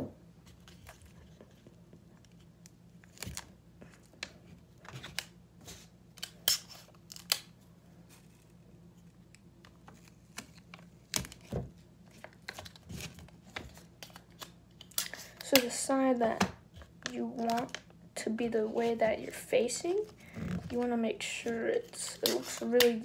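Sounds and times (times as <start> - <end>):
tape snaps: 6.1 - 7.6
paper and tape rustling: 18.8 - 23.0.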